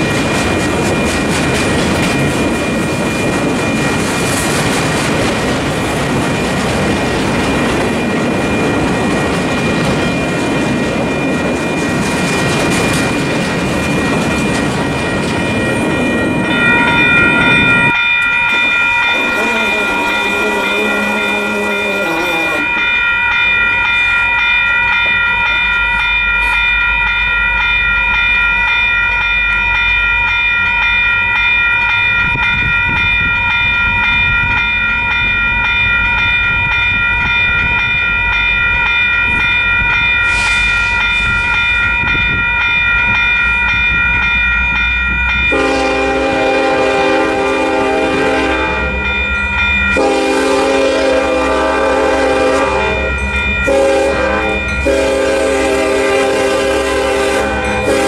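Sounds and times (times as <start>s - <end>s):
crossing bell ringing: 0.0s - 58.0s
train air horn blasts: 45.5s - 49.0s, 50.0s - 58.0s.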